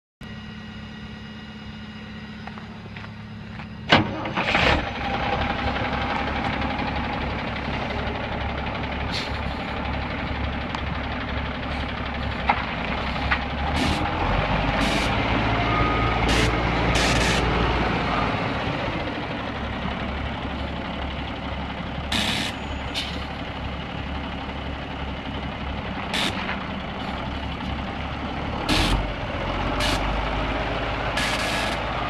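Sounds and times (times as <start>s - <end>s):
steady hum: 0.2s - 4.0s
diesel engine idling: 0.2s - 32.0s.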